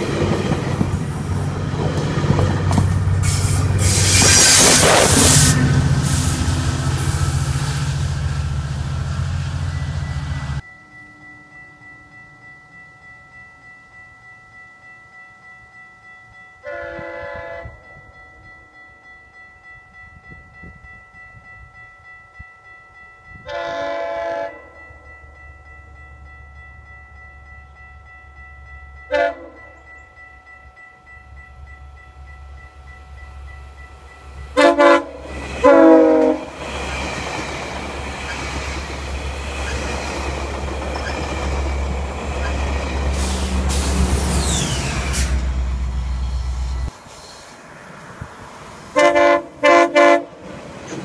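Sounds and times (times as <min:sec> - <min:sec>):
train coaches rushing by: 0:00.0 - 0:10.6, 0:29.1 - 0:51.0
low train rumble: 0:00.0 - 0:51.0
train horn blasts: 0:16.6 - 0:17.8, 0:23.4 - 0:24.8, 0:29.1 - 0:29.8, 0:34.6 - 0:36.6, 0:49.0 - 0:50.4.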